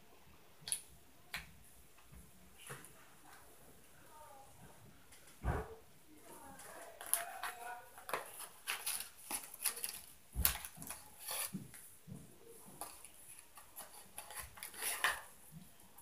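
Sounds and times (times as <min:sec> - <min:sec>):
heavy thump: 0:05.4 - 0:05.8.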